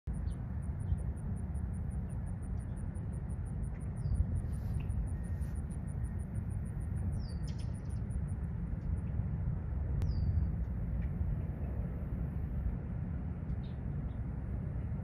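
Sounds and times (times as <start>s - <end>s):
steady low rumble: 0.0s - 15.0s
bird chirps: 0.1s - 1.2s, 7.0s - 8.2s, 10.0s - 10.5s
insect chirping: 0.1s - 9.2s.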